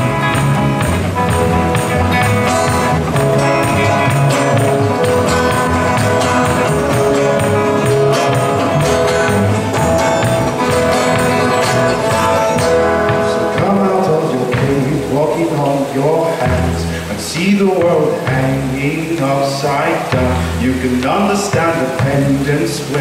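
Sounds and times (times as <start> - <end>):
long held notes: 0.0 - 15.0
keyboard: 0.0 - 19.1
acoustic guitars strumming: 0.0 - 23.0.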